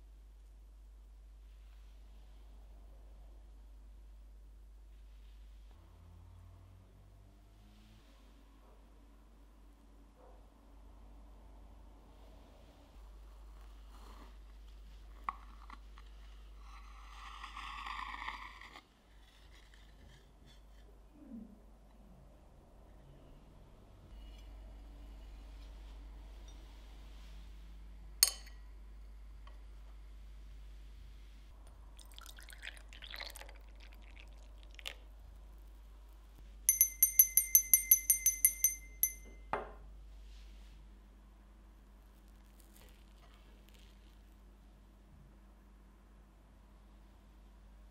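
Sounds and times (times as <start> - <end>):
knife scraping through cake: 13.5 - 20.9
coffee pouring into cup: 31.7 - 35.1
hand bell ringing rapidly: 36.7 - 39.4
bell knocking on wooden table: 36.7 - 39.8.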